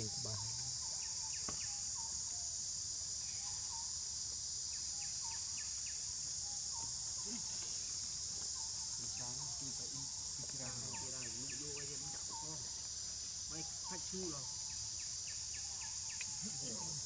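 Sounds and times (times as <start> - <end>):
forest insects droning: 0.0 - 17.0.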